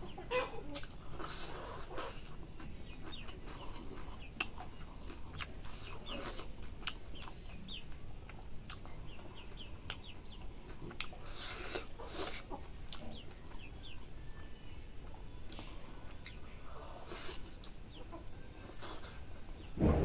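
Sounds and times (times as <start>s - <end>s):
chickens clucking: 0.0s - 20.0s
eating by hand clicks and smacks: 0.7s - 7.6s, 8.2s - 13.6s.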